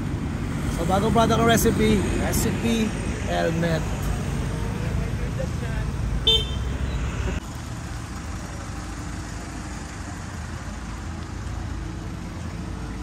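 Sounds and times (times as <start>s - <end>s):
vehicle engines rumbling: 0.0s - 13.0s.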